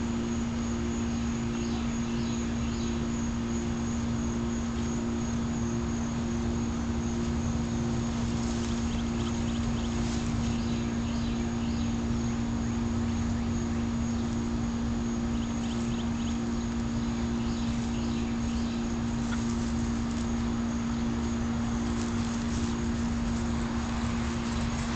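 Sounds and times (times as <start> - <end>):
machine humming: 0.0 - 24.9
faint clicks and rustles: 21.2 - 24.9.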